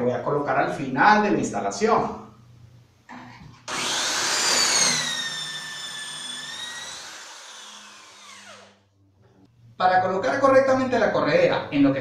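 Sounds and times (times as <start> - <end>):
electric drill whining: 3.7 - 8.8.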